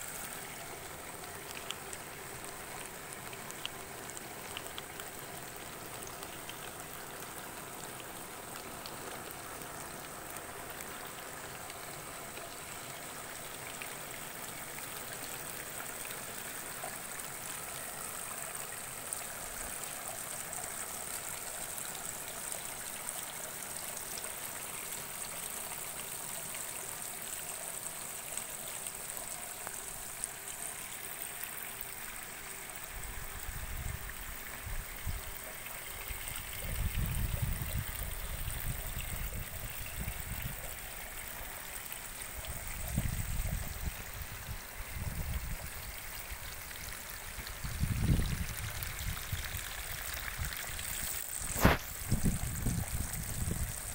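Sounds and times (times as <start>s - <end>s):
water trickling: 0.0s - 53.9s
thin high hiss: 51.0s - 52.1s.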